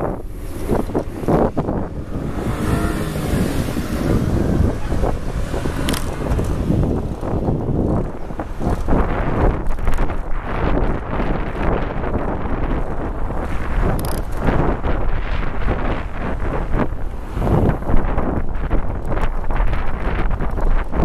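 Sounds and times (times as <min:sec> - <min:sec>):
wind on microphone: 0:00.0 - 0:21.0
vehicle engine passing: 0:00.2 - 0:09.4
camera mount knocking and rattling: 0:05.7 - 0:06.6, 0:14.0 - 0:14.4.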